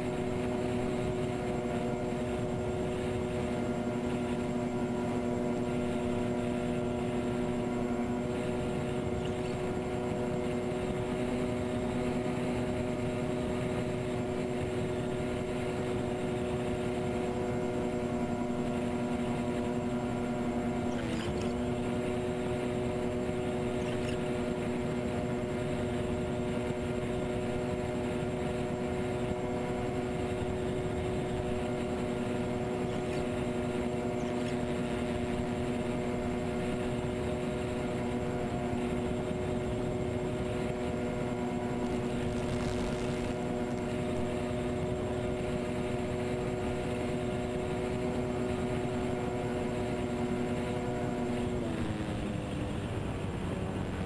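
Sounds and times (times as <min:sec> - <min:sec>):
model plane motors humming: 0:00.0 - 0:54.0.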